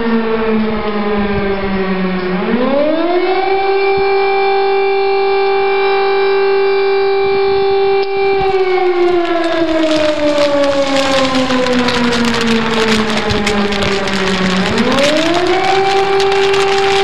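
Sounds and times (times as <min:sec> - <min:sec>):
warning siren: 0:00.0 - 0:11.1
crackling noise: 0:07.4 - 0:17.0.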